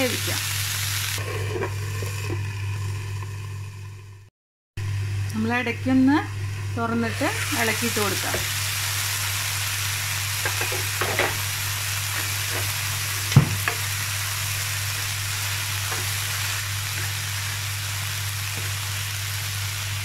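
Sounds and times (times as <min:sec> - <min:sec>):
beans sizzling in a pan: 0:00.0 - 0:02.4, 0:07.1 - 0:20.0.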